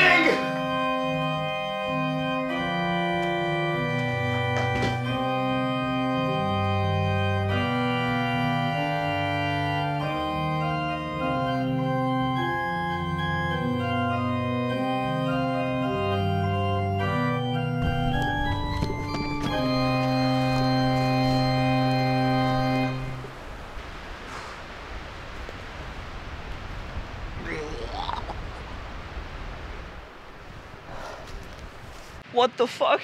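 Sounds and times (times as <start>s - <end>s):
slow organ chords: 0.0s - 23.5s
noise burst: 17.8s - 31.8s.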